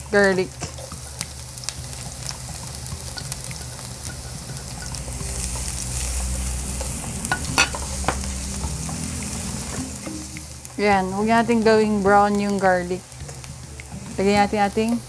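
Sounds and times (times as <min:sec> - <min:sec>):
onion and garlic sizzling in oil: 0:00.0 - 0:15.0
spatula scraping and tapping pan: 0:00.6 - 0:10.1.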